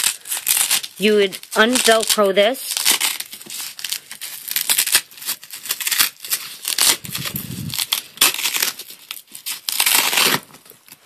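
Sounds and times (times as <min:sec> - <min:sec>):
velcro tearing: 0:00.0 - 0:11.0
fabric rustling: 0:06.7 - 0:08.0.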